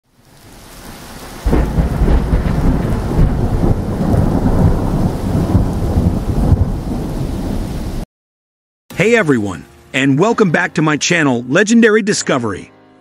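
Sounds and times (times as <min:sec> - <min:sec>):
rain hissing: 0:00.1 - 0:08.1
loud thunderclap: 0:01.2 - 0:08.0
low rumble of thunder: 0:01.2 - 0:08.0.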